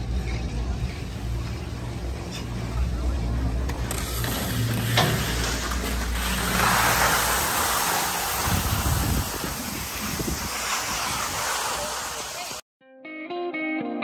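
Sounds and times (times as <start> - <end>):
skis scraping over snow: 3.8 - 12.6
wind rushing over microphone: 6.5 - 12.6.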